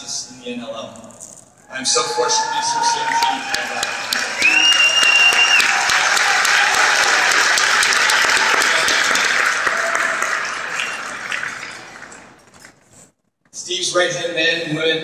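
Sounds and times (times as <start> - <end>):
crowd applauding: 2.0 - 12.5
short high whistle: 4.4 - 5.7.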